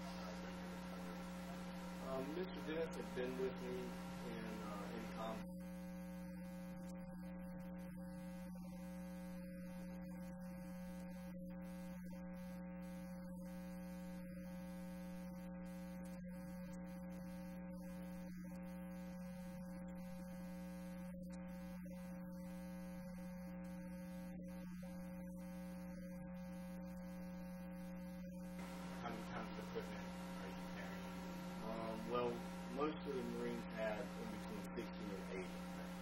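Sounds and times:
electrical mains hum: 0.0 - 36.0.

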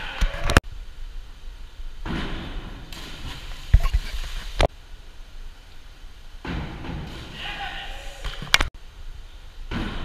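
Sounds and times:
echoing pool hall noise: 4.8 - 10.0.

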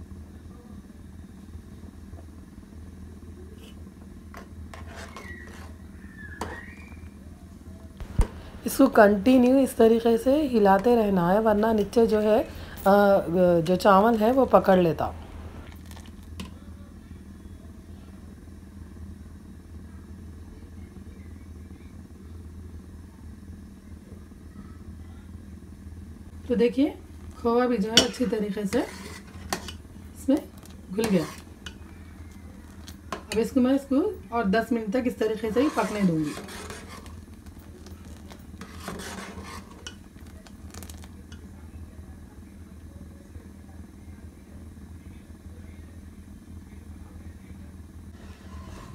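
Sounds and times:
pot simmering hum: 0.0 - 48.9
ladle scraping metal pot: 4.4 - 5.8, 28.0 - 29.8, 30.5 - 31.9, 35.2 - 41.1, 48.2 - 48.9.

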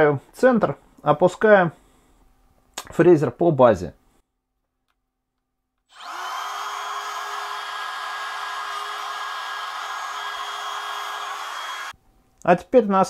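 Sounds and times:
wood router motor whining: 5.9 - 11.9.

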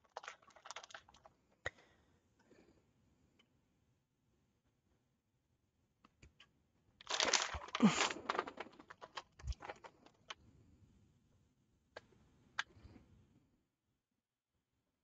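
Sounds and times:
cheese crinkling and rustling: 0.0 - 1.6, 7.0 - 10.4.

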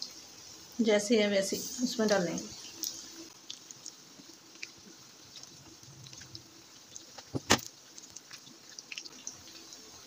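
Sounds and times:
deep-frying sizzle: 0.0 - 10.0
crackling pops: 2.8 - 9.2.

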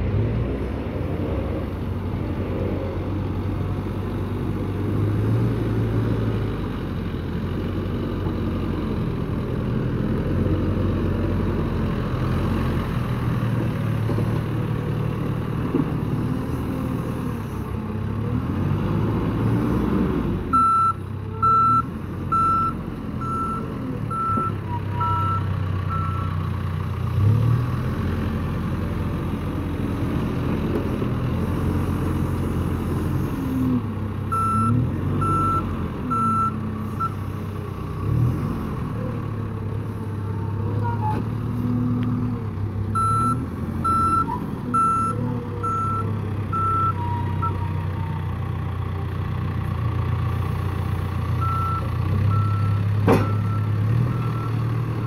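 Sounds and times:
diesel engine revving: 0.0 - 55.0
reversing alarm beeping: 20.6 - 26.3, 34.3 - 37.1, 43.0 - 47.6.

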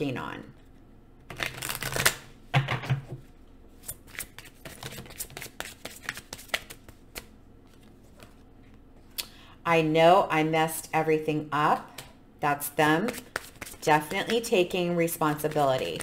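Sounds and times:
cards being shuffled: 3.8 - 8.4, 13.1 - 14.4, 15.3 - 16.0.

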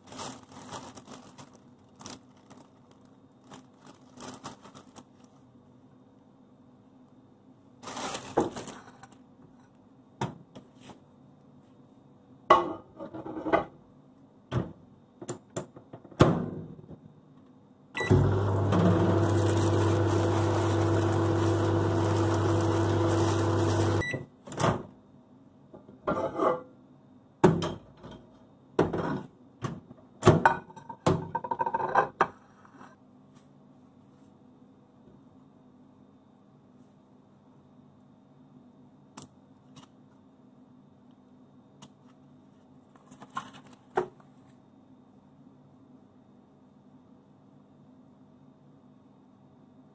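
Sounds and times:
plastic bag rustling: 0.0 - 5.5, 7.8 - 9.2, 18.8 - 24.0
kitchen appliance humming: 18.0 - 24.2.

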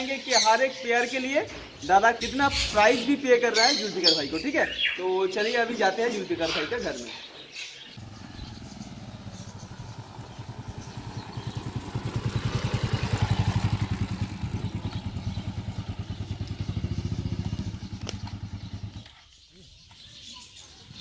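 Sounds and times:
motorcycle engine running: 8.0 - 19.2.

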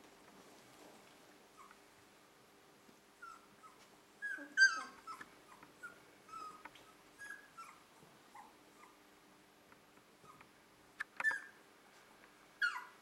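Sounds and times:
puppies whimpering: 3.2 - 7.8, 12.6 - 13.0.

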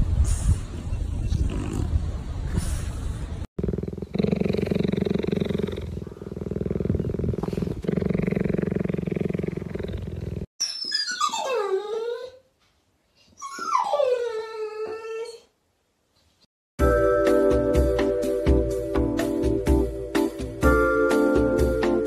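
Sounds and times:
cheetah purring: 3.6 - 10.5
dog whining: 10.6 - 12.5, 13.3 - 15.6.

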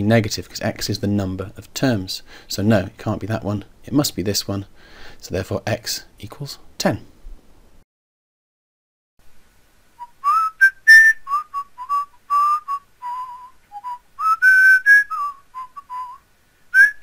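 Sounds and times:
person whistling a tune: 10.0 - 17.0.

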